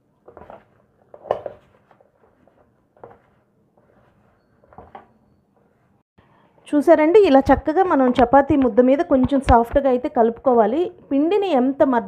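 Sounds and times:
hands kneading dough: 0.0s - 6.0s.

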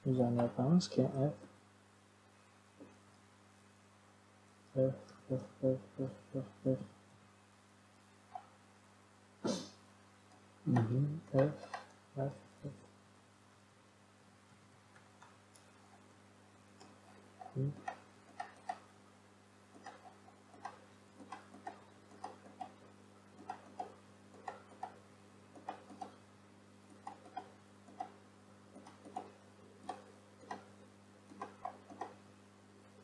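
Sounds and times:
low electrical hum: 0.0s - 33.0s
mouse and keyboard clicking: 16.8s - 18.9s, 19.8s - 22.8s, 23.4s - 25.0s, 25.6s - 26.2s, 26.9s - 28.2s, 28.8s - 30.7s, 31.3s - 32.2s.

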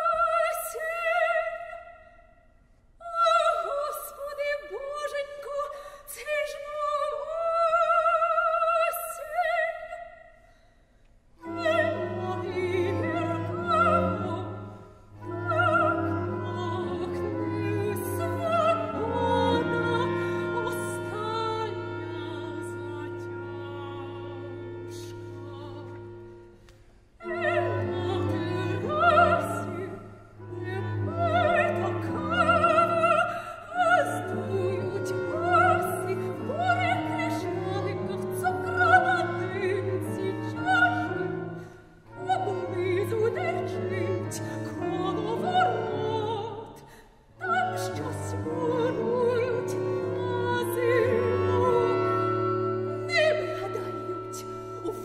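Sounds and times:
soprano singing: 0.0s - 2.3s, 3.0s - 10.4s, 11.4s - 55.0s
chamber ensemble playing: 11.4s - 26.6s, 27.2s - 46.7s, 47.4s - 55.0s.

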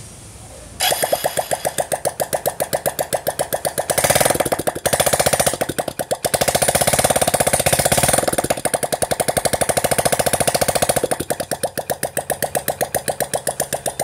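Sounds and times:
motorcycle engine popping: 0.8s - 14.0s.

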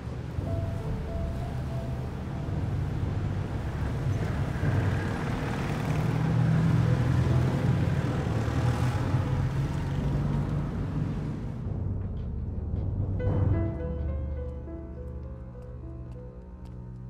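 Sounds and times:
motorcycles riding past: 3.2s - 11.4s.

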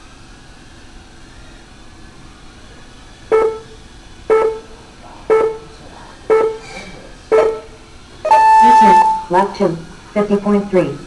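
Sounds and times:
short electronic beeps: 3.3s - 3.7s, 4.3s - 4.7s, 5.3s - 5.7s, 6.3s - 6.7s, 7.3s - 9.4s.

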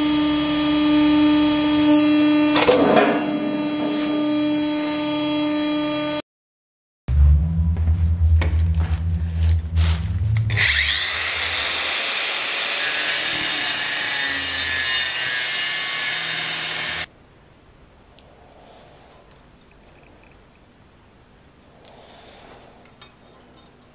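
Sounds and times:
angle grinder cutting steel: 0.0s - 6.2s, 10.4s - 17.1s.

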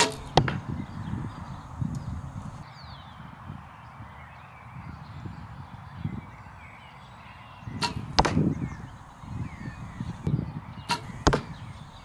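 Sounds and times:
arrow striking target thud: 0.0s - 0.8s, 7.8s - 10.2s, 10.9s - 12.0s
arrow hissing: 0.0s - 2.6s, 7.7s - 12.0s.

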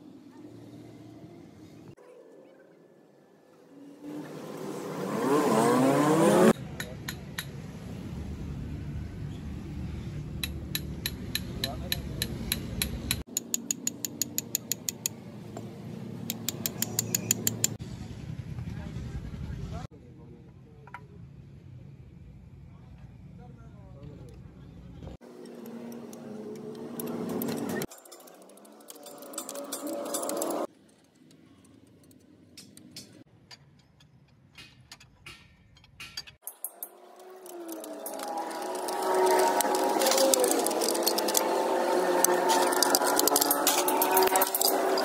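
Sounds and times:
ratchet wrench clicking: 10.4s - 15.1s, 16.3s - 17.8s, 36.1s - 41.5s
metallic clicks of tools: 10.4s - 15.2s, 16.3s - 17.8s, 25.3s - 45.0s.

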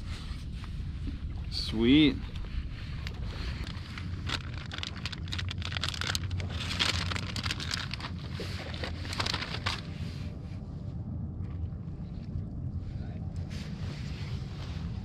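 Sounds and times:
low wind rumble: 0.0s - 15.0s
plastic bag crinkling: 3.6s - 9.9s.

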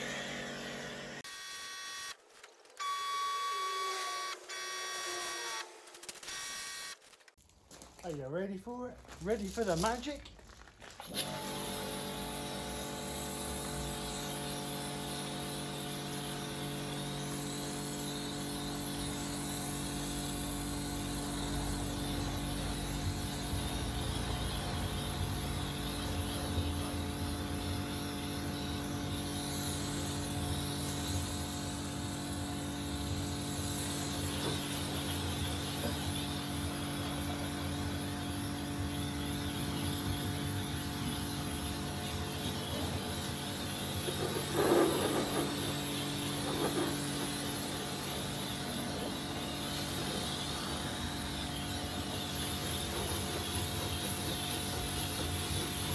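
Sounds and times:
pressure washer motor humming: 0.0s - 1.2s, 11.0s - 55.9s
water spraying: 21.4s - 55.9s.

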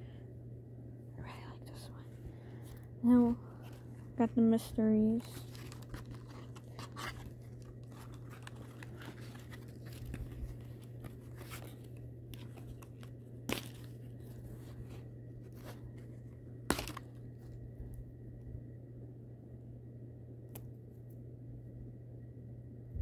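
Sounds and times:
packaging crinkling and tearing: 5.0s - 17.5s.

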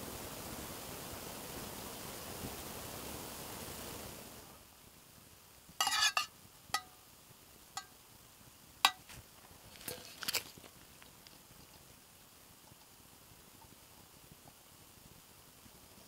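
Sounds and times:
metal spoon clinking on steel cup: 5.8s - 6.9s, 8.9s - 9.1s.

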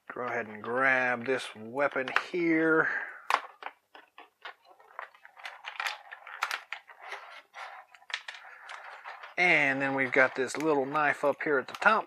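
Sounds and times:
plastic blister tray crackling: 1.9s - 12.0s.

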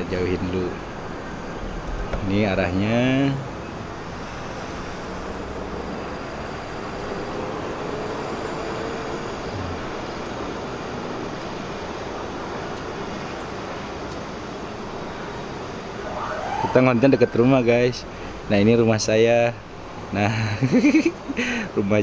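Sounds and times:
outdoor background noise: 0.0s - 22.0s
faint hum: 14.7s - 18.8s.

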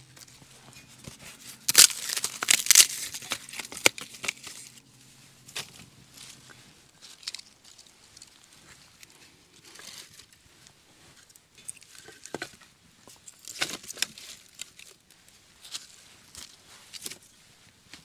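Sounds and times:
dry rustling: 0.0s - 18.0s.

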